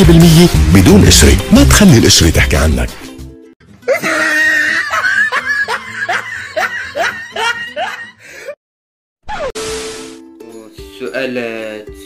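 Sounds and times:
person laughing: 0:03.9 - 0:08.2.

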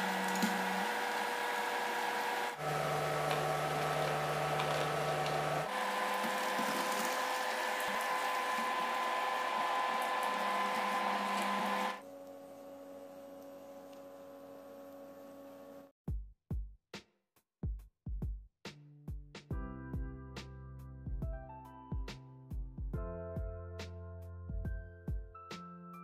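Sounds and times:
food sizzling in a pan: 0:00.0 - 0:12.0
electrical hum: 0:00.0 - 0:15.9.

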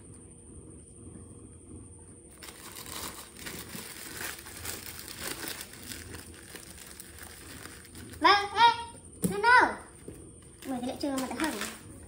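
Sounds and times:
plastic bag crinkling: 0:02.3 - 0:08.3, 0:10.5 - 0:11.8.

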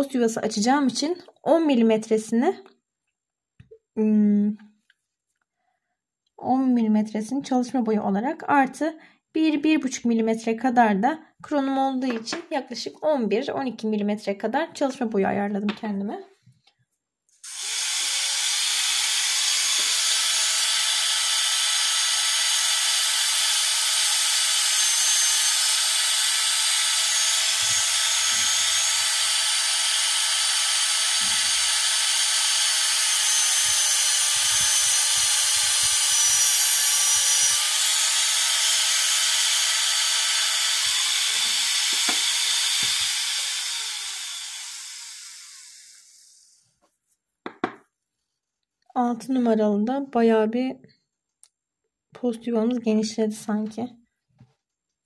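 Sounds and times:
dental drill high-pitched whine: 0:17.4 - 0:46.6.

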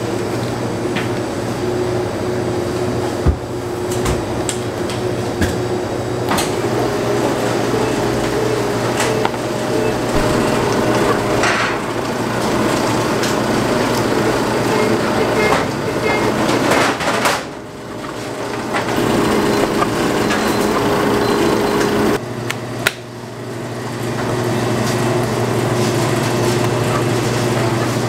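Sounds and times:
dough sheeter machine hum: 0:00.0 - 0:28.0
knocks and clatter of dough work: 0:03.1 - 0:22.0.

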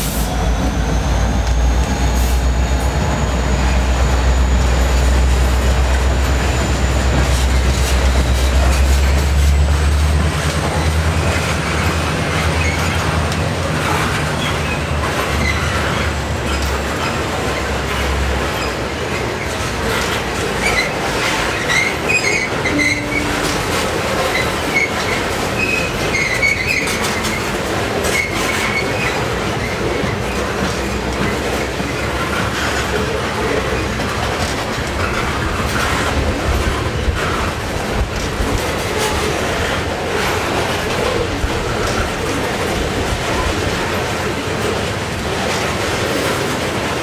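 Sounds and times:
train wheels rumbling and clicking: 0:00.0 - 0:47.0
steel wheel squeals: 0:00.2 - 0:13.2, 0:13.8 - 0:34.4.

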